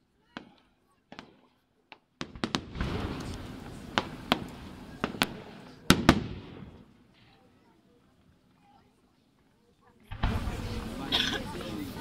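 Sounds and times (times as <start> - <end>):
firework shells bursting: 0.4 - 7.0.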